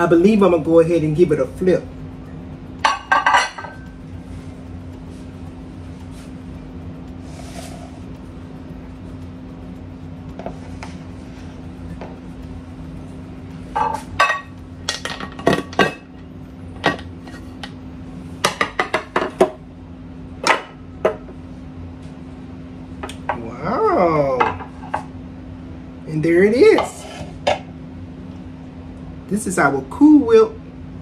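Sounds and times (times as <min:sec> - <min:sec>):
glass plate clinking: 0:02.8 - 0:03.9
plate scraping on counter: 0:07.2 - 0:08.1, 0:26.8 - 0:27.7.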